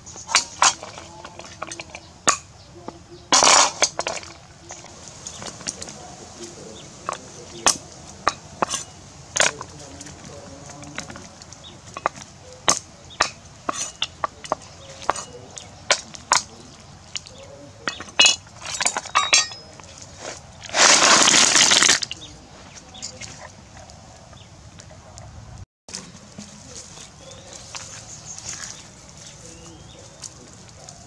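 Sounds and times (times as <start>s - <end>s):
rattling clatter: 3.3s - 22.2s.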